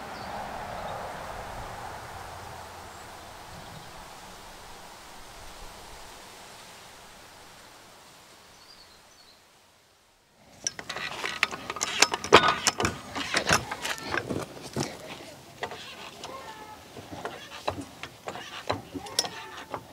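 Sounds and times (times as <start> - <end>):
faint hiss: 0.0 - 19.9
trolley jack clicking and clanking: 10.5 - 19.9.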